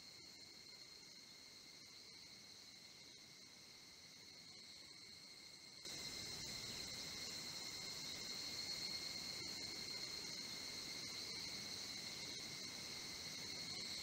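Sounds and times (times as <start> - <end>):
insect chorus trilling: 0.0 - 14.0.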